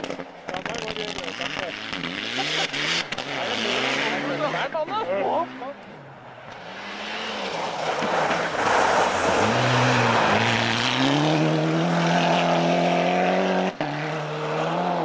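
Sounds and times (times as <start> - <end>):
rally car engine at full speed: 0.0 - 15.0
tyres hissing on snow: 7.7 - 10.5.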